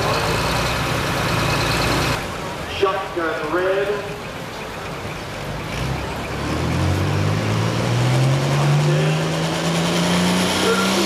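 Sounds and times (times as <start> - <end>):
diesel engine revving: 0.0 - 2.5, 5.2 - 11.0.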